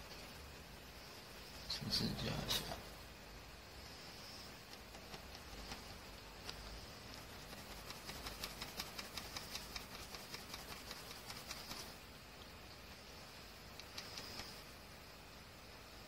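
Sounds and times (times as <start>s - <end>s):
pencil scratching on paper: 3.9s - 12.0s, 13.8s - 14.7s.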